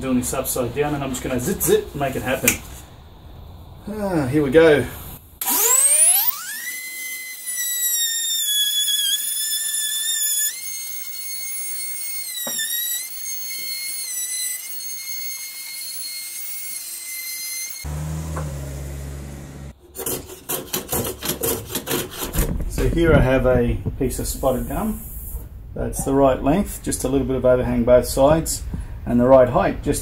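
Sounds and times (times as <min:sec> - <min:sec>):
router whining cutting wood: 0:05.4 - 0:19.8.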